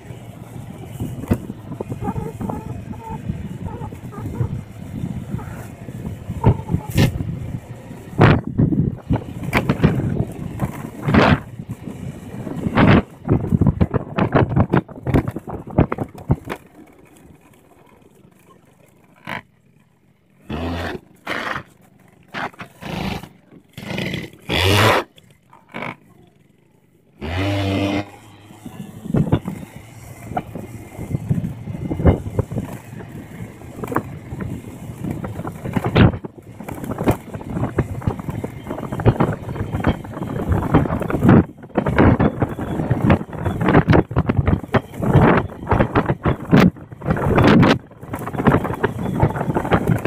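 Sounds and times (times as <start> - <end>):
wind buffeting microphone: 0.0 - 18.0, 28.0 - 50.0
scooter engine revving: 20.4 - 26.5, 27.2 - 50.0.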